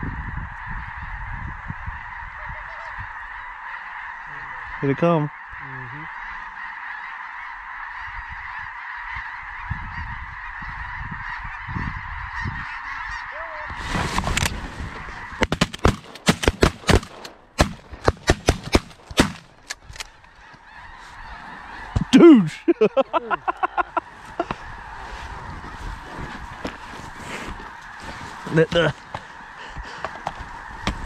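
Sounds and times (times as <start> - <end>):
loud falling goose call: 0.0 - 14.1, 20.2 - 31.0
flock of geese calling: 0.0 - 16.1, 18.8 - 31.0
shotgun shots: 15.4 - 19.6.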